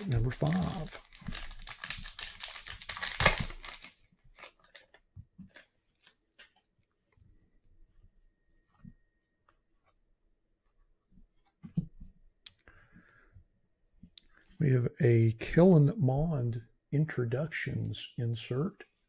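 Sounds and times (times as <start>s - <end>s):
foil pack tearing and crinkling: 0.0s - 6.5s.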